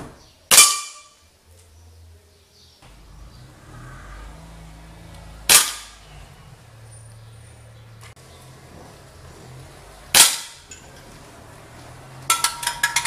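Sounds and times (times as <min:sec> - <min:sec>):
pellet striking metal targets: 0:00.0 - 0:01.3, 0:05.4 - 0:06.1, 0:10.1 - 0:11.1, 0:12.2 - 0:13.0
pellet knocking tin can: 0:12.3 - 0:13.0.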